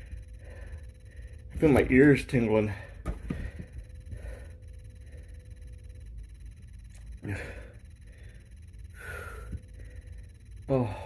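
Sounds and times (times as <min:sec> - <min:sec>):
man breathing hard: 0:00.0 - 0:01.5, 0:02.8 - 0:05.7, 0:07.1 - 0:11.0.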